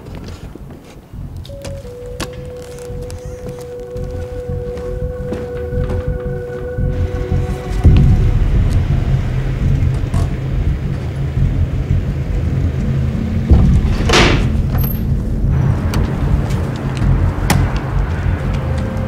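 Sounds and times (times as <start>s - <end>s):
car engine starting and running: 6.8s - 19.0s.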